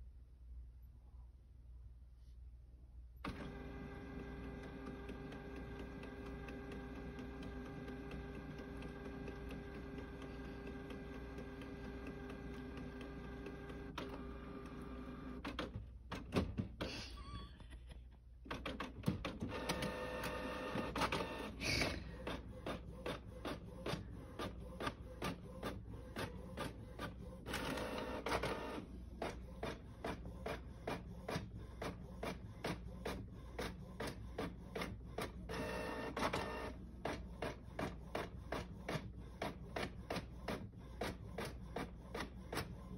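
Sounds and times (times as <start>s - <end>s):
printer mechanical whine: 3.2s - 16.3s, 18.5s - 21.6s, 22.2s - 42.9s.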